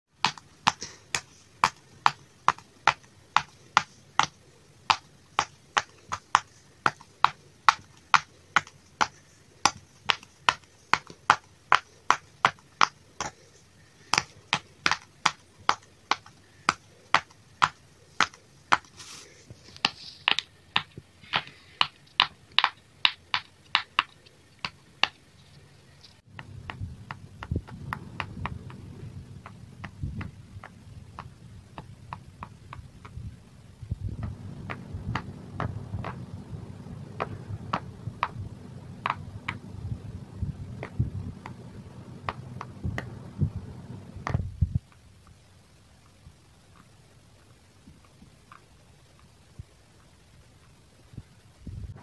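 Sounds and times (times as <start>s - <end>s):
low rumbling noise: 26.2s - 44.8s.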